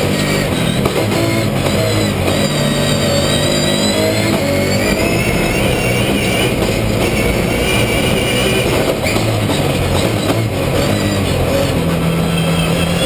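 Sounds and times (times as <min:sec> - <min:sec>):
high whine: 0:00.0 - 0:13.0
race car engine running hard: 0:00.0 - 0:13.0.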